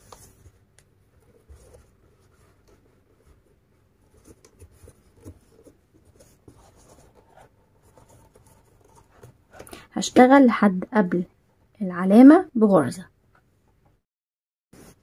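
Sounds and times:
crochet hook scratching cord: 1.2s - 9.7s.

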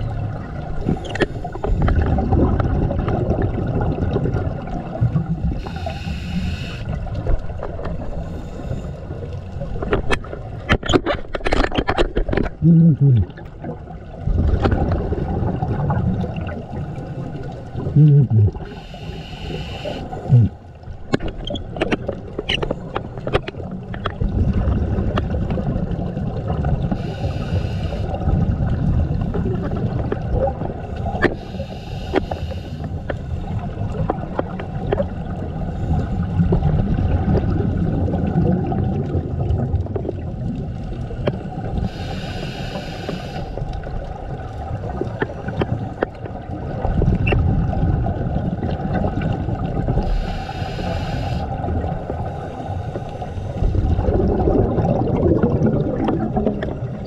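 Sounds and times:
low underwater rumble: 0.0s - 5.7s, 12.1s - 19.0s, 43.6s - 50.4s, 51.5s - 57.0s.

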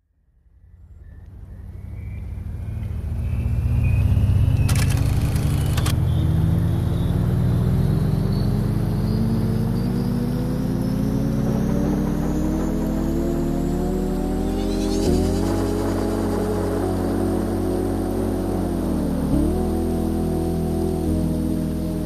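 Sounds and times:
deep rising drone: 0.2s - 22.0s
hissy swell: 12.4s - 19.2s.

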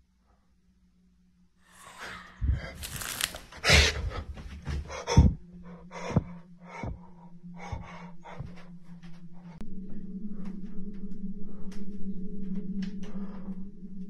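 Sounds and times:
steady low hum: 0.1s - 14.0s
person breathing heavily: 1.6s - 9.6s.

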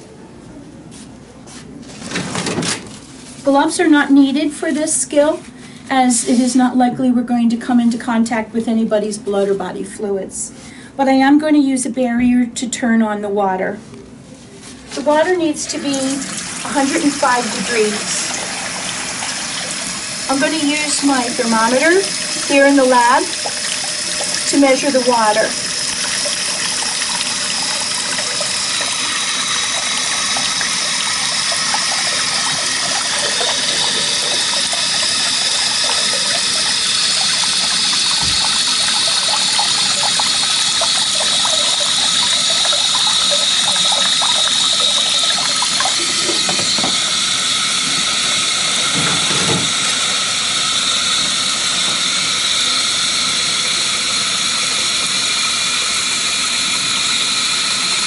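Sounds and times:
faucet running into sink: 15.1s - 58.0s
water pouring into plastic basin: 15.6s - 57.6s.

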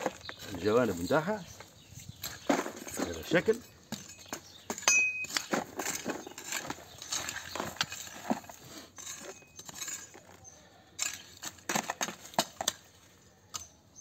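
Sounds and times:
hoe chopping and scraping soil: 0.0s - 14.0s.

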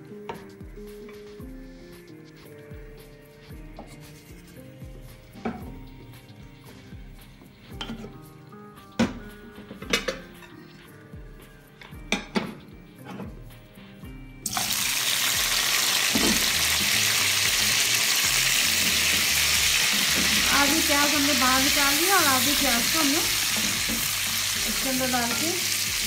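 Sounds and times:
meat sizzling in hot oil: 14.4s - 26.0s.

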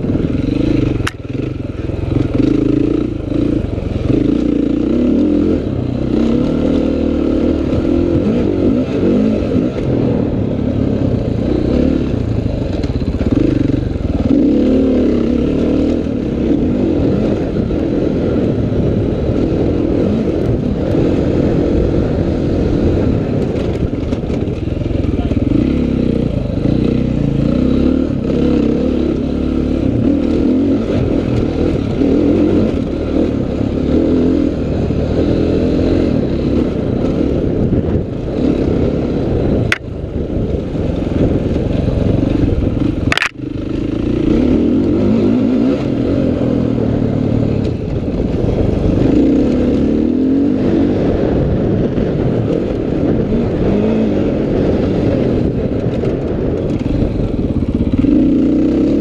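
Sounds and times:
dirt bike engine revving: 0.0s - 59.0s
sharp click: 1.0s - 1.2s, 43.0s - 43.4s.

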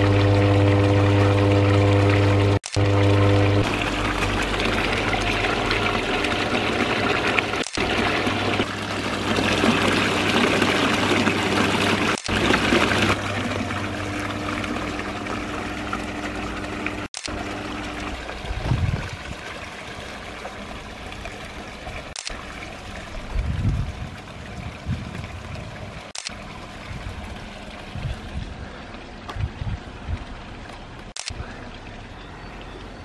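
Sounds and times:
water splashing into metal trough: 0.0s - 25.6s.

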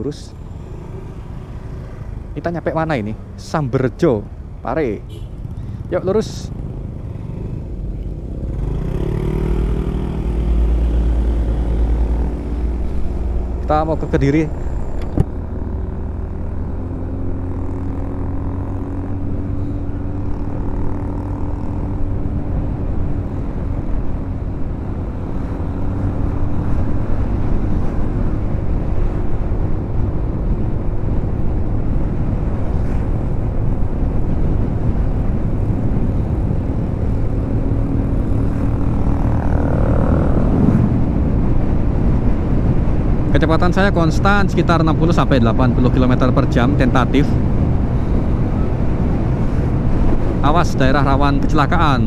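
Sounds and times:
scooter engine hum: 0.3s - 2.4s, 4.4s - 43.1s
wind on microphone: 19.2s - 43.3s, 47.3s - 50.4s.

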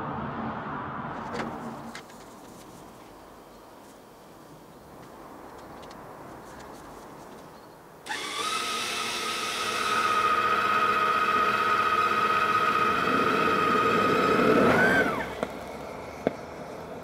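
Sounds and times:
stand mixer motor whining: 8.1s - 15.4s.

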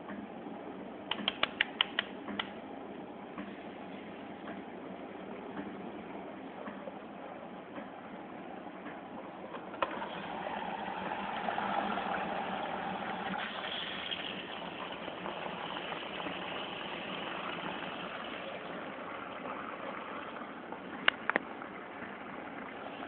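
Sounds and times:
sharp click: 1.1s - 2.6s
appliance humming: 1.2s - 23.0s.

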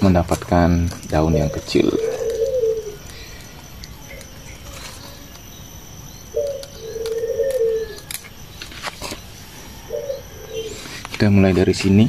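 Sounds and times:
dove cooing: 1.2s - 11.0s
sharp clicks: 2.2s - 9.3s.

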